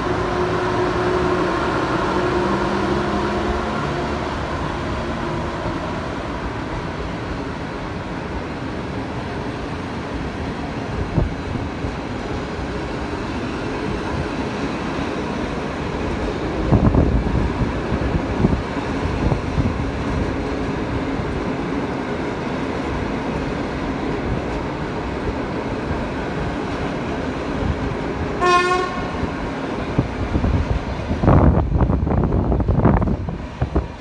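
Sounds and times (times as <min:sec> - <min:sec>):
train horn toot: 0:00.0 - 0:04.2, 0:28.4 - 0:29.2
train wheels rumbling on rail: 0:00.0 - 0:34.0.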